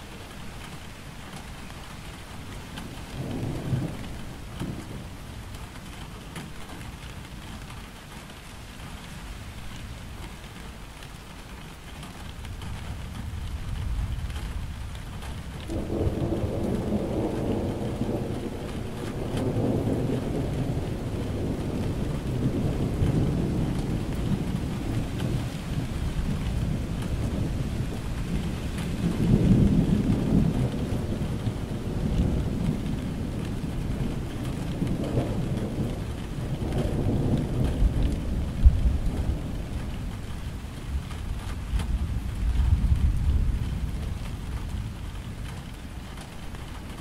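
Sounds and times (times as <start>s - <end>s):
steady rain falling: 0.0s - 47.0s
rolling thunder: 2.8s - 5.1s, 12.6s - 47.0s.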